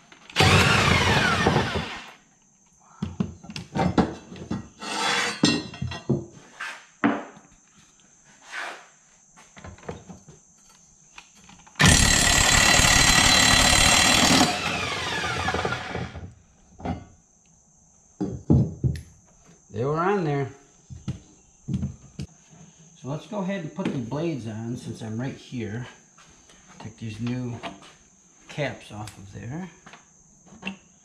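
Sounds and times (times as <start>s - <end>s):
cordless impact wrench: 0.4s - 2.2s, 11.8s - 16.2s.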